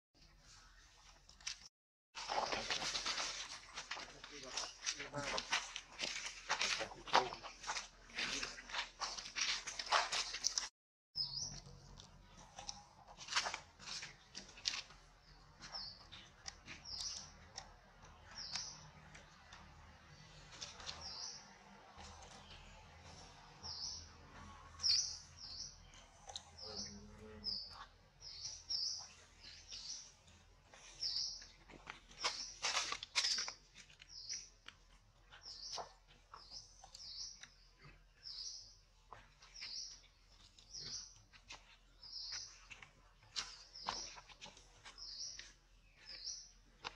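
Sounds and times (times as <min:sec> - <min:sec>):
dry leaves rustling: 0:02.2 - 0:10.7, 0:11.7 - 0:17.4, 0:30.7 - 0:34.5
small bird chirping: 0:11.2 - 0:12.8, 0:15.2 - 0:19.3, 0:24.8 - 0:34.7, 0:35.3 - 0:46.9.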